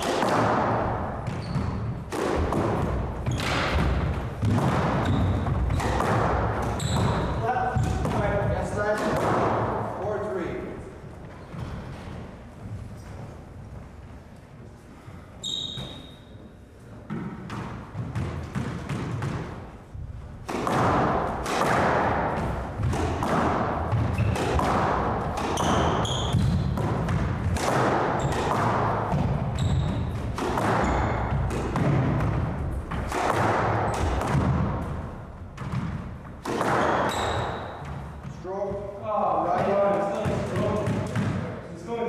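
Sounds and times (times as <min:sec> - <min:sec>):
racquets striking ball: 0:00.0 - 0:10.1, 0:17.0 - 0:41.6
squash ball hitting walls: 0:00.0 - 0:10.4, 0:15.4 - 0:16.2, 0:16.9 - 0:41.6
shoes squeaking: 0:01.2 - 0:02.1, 0:03.2 - 0:08.3, 0:15.4 - 0:17.2, 0:23.9 - 0:24.6, 0:25.3 - 0:26.8, 0:28.0 - 0:31.6, 0:36.6 - 0:40.8.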